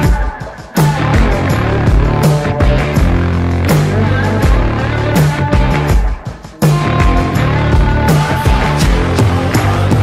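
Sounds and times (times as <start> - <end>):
guitar: 0.0 - 10.0
bass notes: 0.8 - 10.0.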